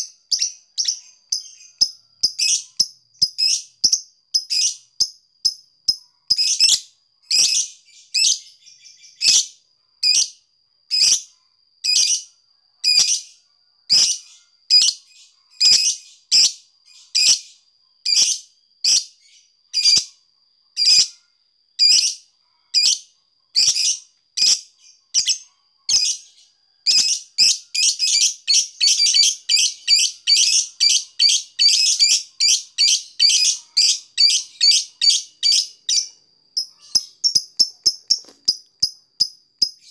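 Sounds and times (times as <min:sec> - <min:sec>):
lovebird chirping: 0:00.0 - 0:10.4, 0:11.0 - 0:39.9
bird clicking chatter: 0:34.2 - 0:39.9.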